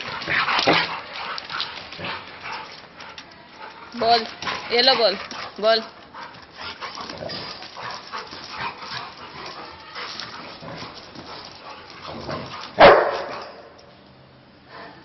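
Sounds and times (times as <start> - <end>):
dog barking: 12.8 - 13.6.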